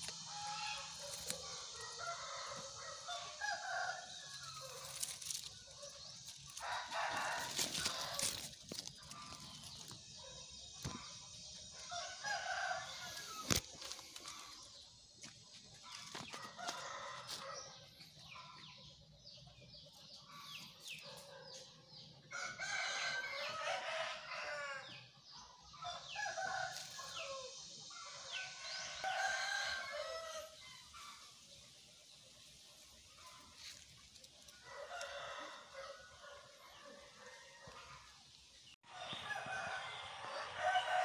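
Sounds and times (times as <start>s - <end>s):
rooster crowing: 6.6s - 8.4s, 22.3s - 25.0s, 28.1s - 30.6s, 34.6s - 38.0s, 38.9s - 41.0s.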